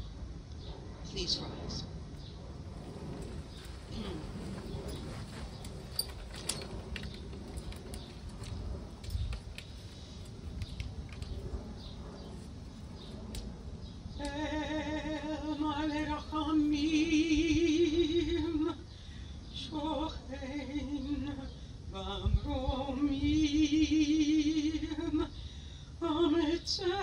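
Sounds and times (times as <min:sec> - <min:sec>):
people shuffling and creaking: 0:02.0 - 0:13.6.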